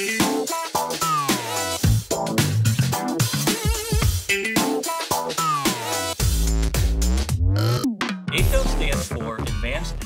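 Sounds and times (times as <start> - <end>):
heavy bass: 5.8 - 10.0.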